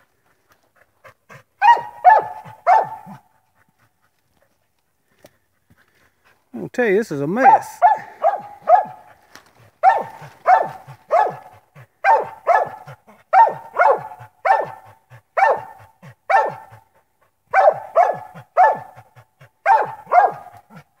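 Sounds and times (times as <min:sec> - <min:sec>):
dog barking: 0:01.6 - 0:03.3, 0:07.4 - 0:09.2, 0:09.8 - 0:16.8, 0:17.5 - 0:20.8.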